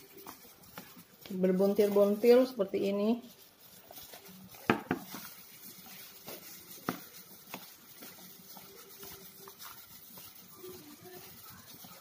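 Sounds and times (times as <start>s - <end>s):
gloved hand rubbing flour in bowl: 0.0s - 12.0s.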